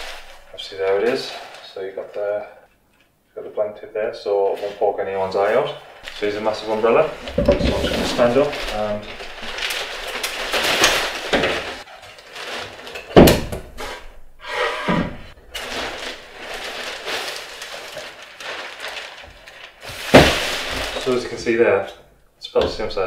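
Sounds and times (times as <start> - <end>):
umbrella fabric rustling: 0.0 - 2.3, 4.5 - 14.0, 15.3 - 21.6
umbrella canopy snapping open: 8.3 - 11.8.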